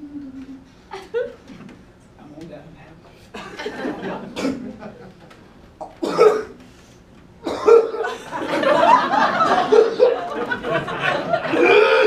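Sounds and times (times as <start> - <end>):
audience laughing: 3.4 - 5.4, 7.8 - 12.0.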